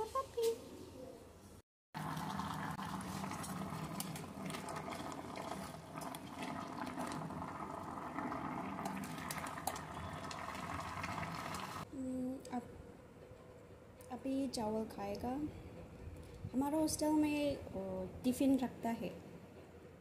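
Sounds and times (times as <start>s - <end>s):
pot of water boiling: 2.0s - 11.9s.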